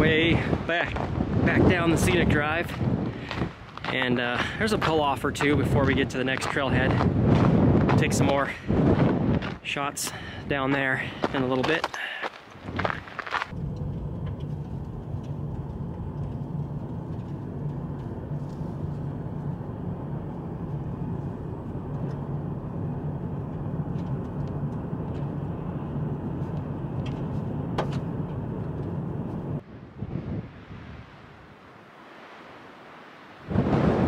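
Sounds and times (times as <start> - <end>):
car engine: 13.3 - 29.6.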